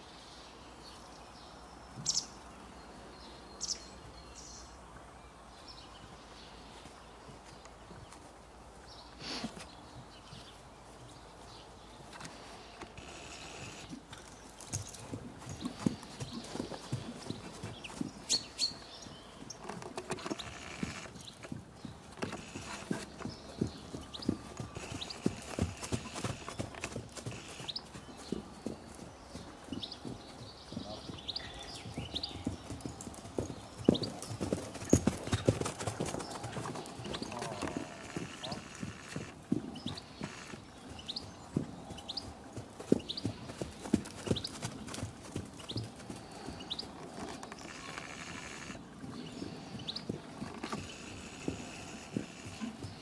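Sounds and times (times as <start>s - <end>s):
horse hooves thudding on sand: 6.0s - 53.0s.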